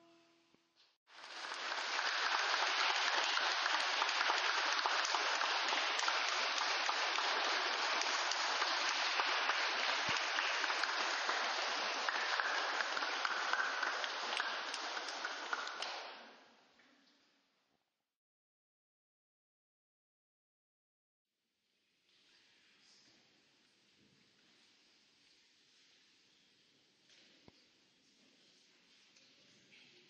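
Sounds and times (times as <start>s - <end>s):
crowd clapping: 1.2s - 16.3s.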